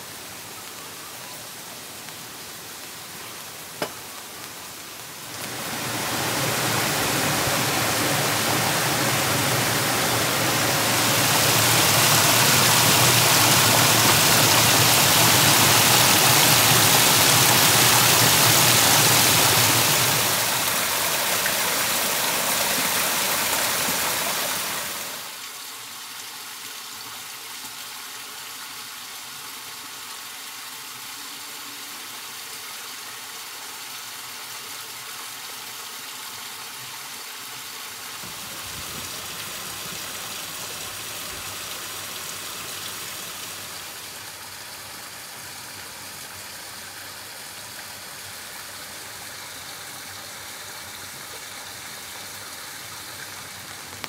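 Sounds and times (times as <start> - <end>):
stream flowing water: 0.0 - 54.0.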